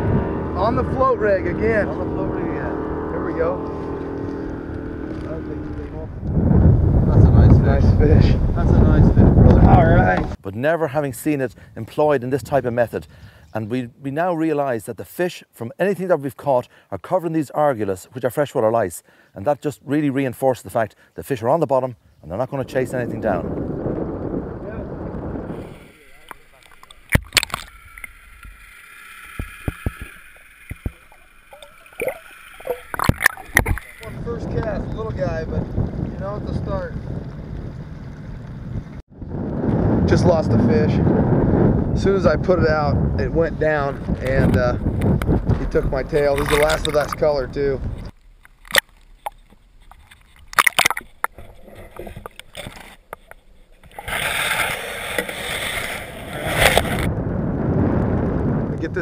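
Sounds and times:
muffled underwater gurgling: 0.0s - 6.2s, 22.8s - 38.3s
water splashing: 25.6s - 34.6s, 48.1s - 57.1s
underwater clicks and knocks: 26.3s - 28.6s, 29.2s - 34.0s, 48.0s - 54.0s.

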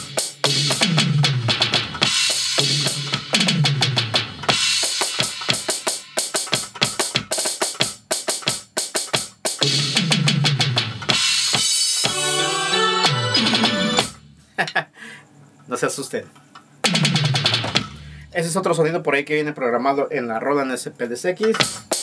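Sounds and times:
drum pad beat: 0.0s - 14.2s, 16.8s - 18.1s.

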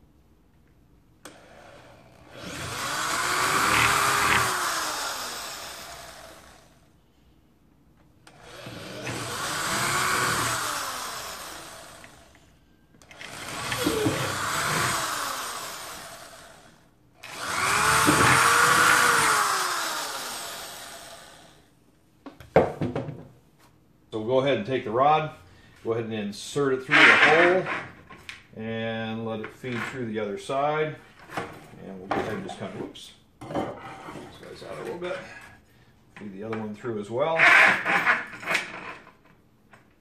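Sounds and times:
electric drill boring plastic: 1.2s - 6.8s, 8.3s - 12.4s, 13.0s - 21.7s.

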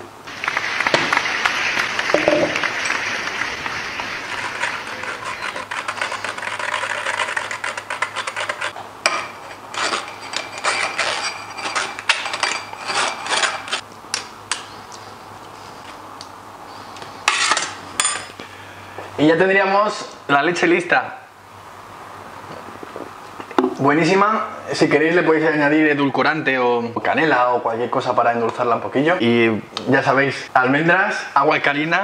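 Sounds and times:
metal spoon scraping mesh: 4.4s - 8.8s, 9.4s - 13.8s.

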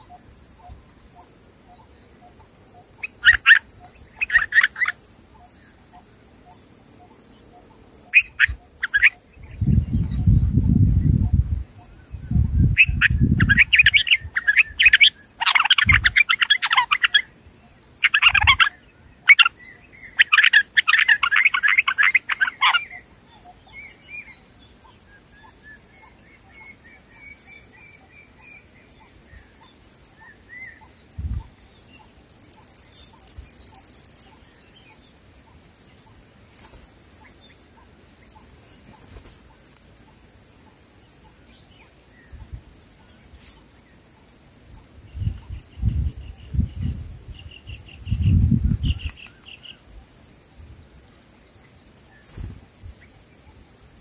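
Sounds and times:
high-pitched insect chorus: 0.0s - 54.0s
insect buzzing: 0.0s - 54.0s
bird chirps: 1.7s - 17.3s, 18.0s - 35.1s.

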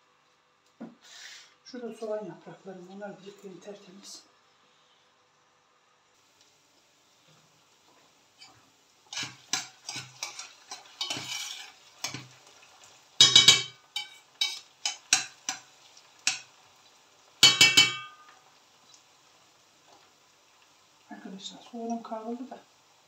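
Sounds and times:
onions sauteing: 1.0s - 23.0s
metal spoon scraping a pot: 8.4s - 12.3s, 13.2s - 15.6s.

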